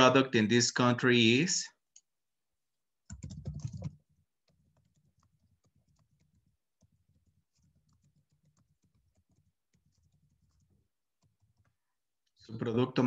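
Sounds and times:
typing on a keyboard: 3.1 - 11.7.

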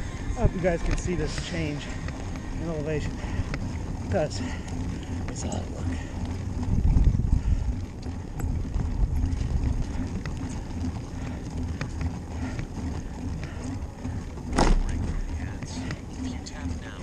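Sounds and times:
bicycle clicks and rattles: 0.0 - 17.0
rumble of wind and bicycle tyres: 0.0 - 17.0
bicycle knock: 14.5 - 15.1.

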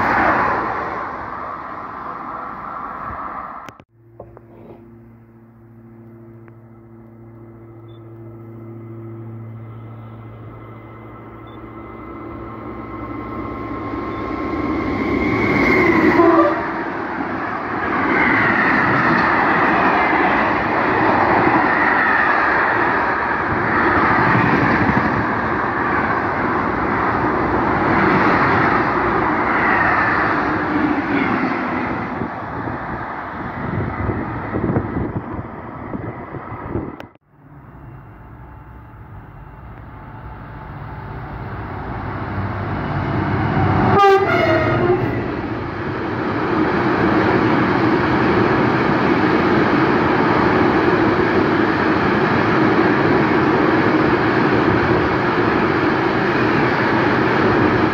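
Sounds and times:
freight train rumbling past: 0.0 - 57.9
train horn blast: 15.9 - 16.8, 43.2 - 45.3.

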